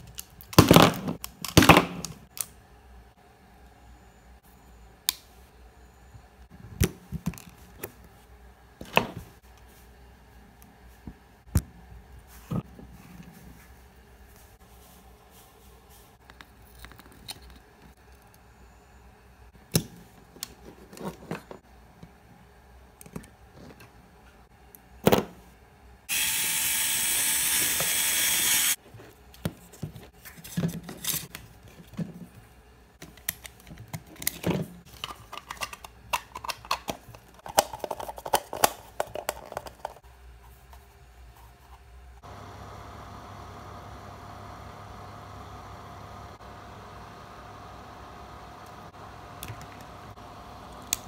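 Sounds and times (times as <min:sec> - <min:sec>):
small motor whirring: 0:26.1 - 0:28.8.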